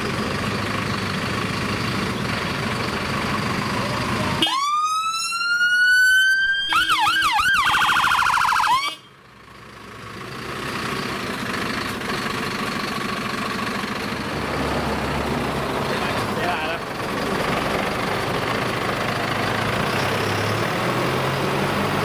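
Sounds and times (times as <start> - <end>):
diesel truck engine rumbling: 0.0 - 22.0
fire truck siren wailing: 2.5 - 9.1.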